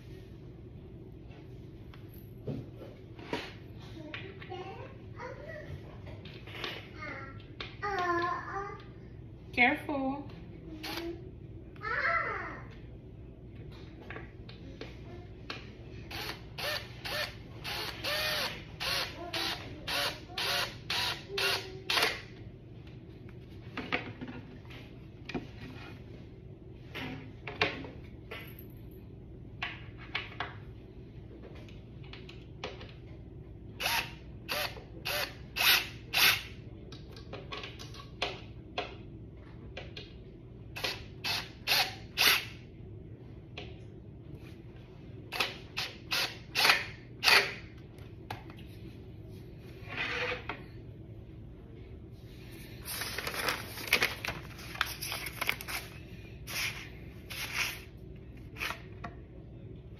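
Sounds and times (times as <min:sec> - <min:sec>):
cordless drill driving screws: 0:16.1 - 0:22.0, 0:33.8 - 0:36.4.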